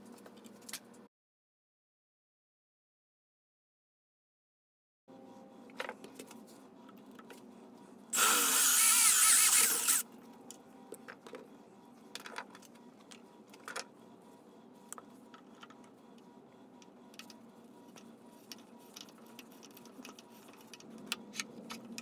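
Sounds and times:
power drill drilling metal: 8.2s - 10.0s.

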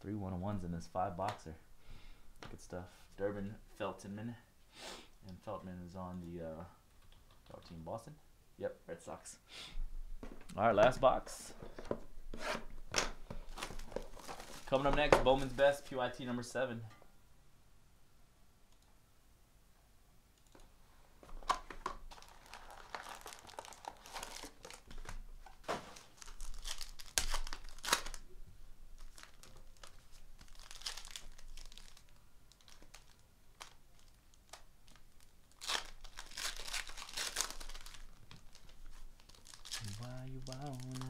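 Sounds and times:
card pack wrappers tearing: 22.1s - 28.2s, 29.0s - 41.0s.

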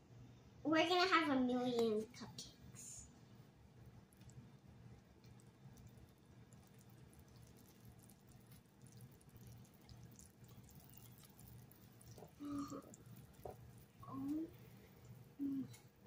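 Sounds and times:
whisk stirring batter in glass bowl: 5.0s - 14.9s
person humming: 14.0s - 14.6s, 15.4s - 15.8s.

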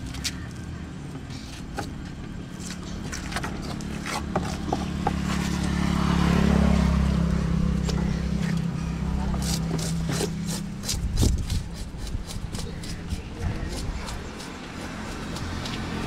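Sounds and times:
vehicle engine passing: 2.3s - 12.0s, 12.9s - 16.0s.

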